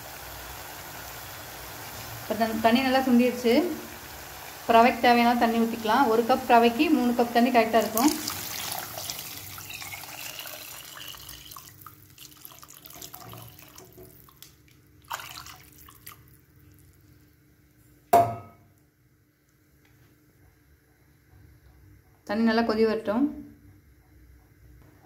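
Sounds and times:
water poured into a pot: 7.7s - 17.1s
sharp knock: 18.1s - 18.6s.

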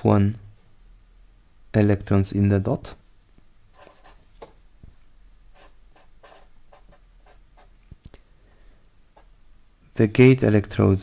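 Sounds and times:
marker pen writing on paper: 3.7s - 4.5s, 5.5s - 7.8s.

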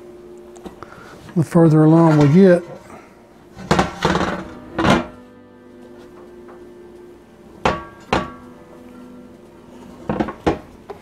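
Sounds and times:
cast iron skillet clanking on stove: 3.6s - 5.2s, 7.6s - 8.4s.

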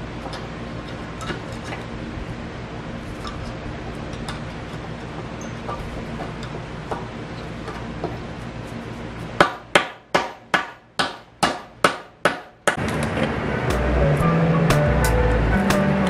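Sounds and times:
hammer hitting a nail: 9.4s - 12.8s.

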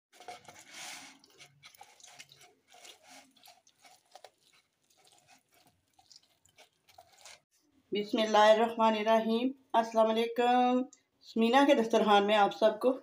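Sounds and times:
orange squishing on hand juicer: 0.1s - 7.5s.

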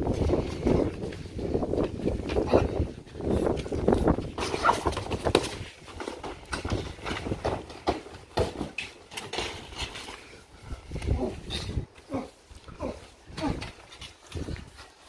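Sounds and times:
scrambling footsteps: 0.0s - 15.0s
knocks and thuds: 4.4s - 9.6s
grunts: 11.0s - 13.8s.

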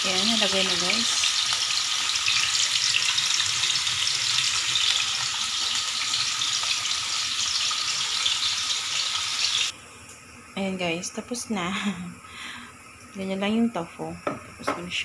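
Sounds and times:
egg frying in a pan: 0.0s - 9.7s
hot oil sizzling and crackling: 0.0s - 9.7s.

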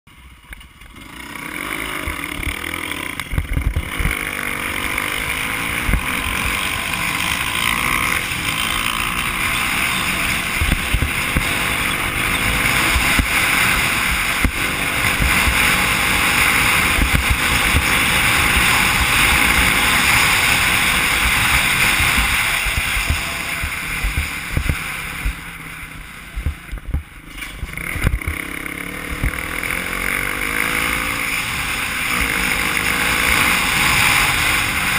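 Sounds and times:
dirt bike engine running: 0.1s - 34.9s
low thumps from rough ground: 2.0s - 29.8s
wind rushing over microphone: 3.2s - 4.6s, 12.4s - 29.6s.

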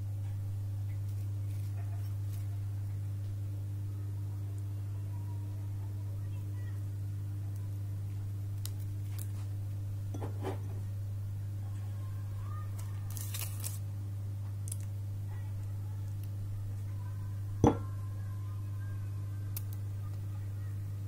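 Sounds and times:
steady low hum: 0.0s - 21.0s
foil rustle: 1.1s - 2.5s, 12.8s - 13.8s.

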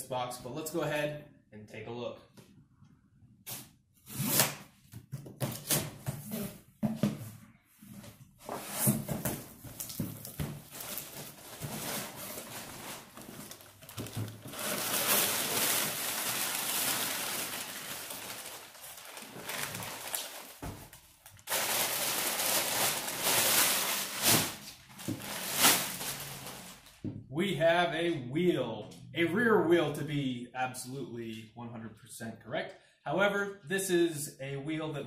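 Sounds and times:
paper and plastic rustling: 8.4s - 27.0s.

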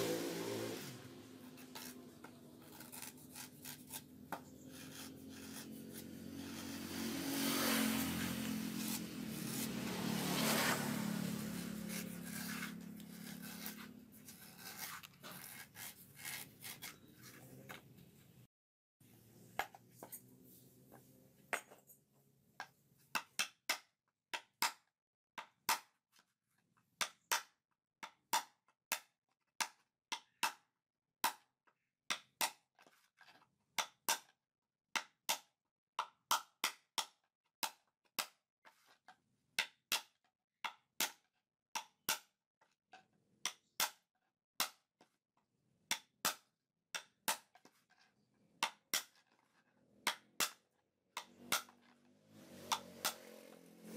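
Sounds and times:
scraping and carving coconut: 0.0s - 18.5s, 47.0s - 53.9s.

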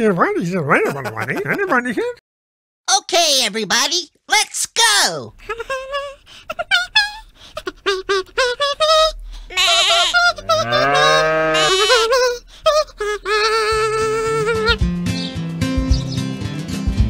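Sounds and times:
high-pitched cartoon voices humming: 5.4s - 14.9s.

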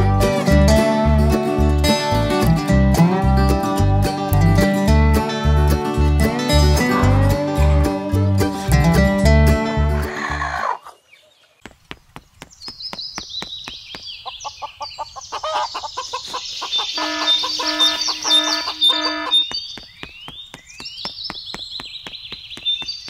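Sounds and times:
chickens clucking: 10.0s - 11.6s, 14.2s - 19.6s
chicks peeping: 13.2s - 20.6s.

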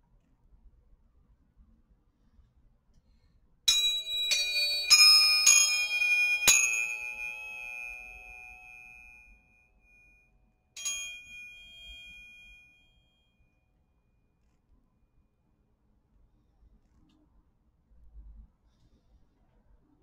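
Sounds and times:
tuning forks clinking: 3.7s - 9.4s, 10.8s - 12.8s
tuning forks ringing: 3.7s - 9.5s, 10.8s - 13.1s.

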